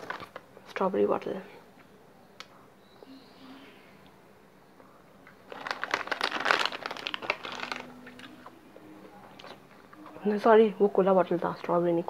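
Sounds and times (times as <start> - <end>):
plastic snack packet crinkling: 0.0 - 0.8, 5.4 - 8.5, 9.2 - 9.6.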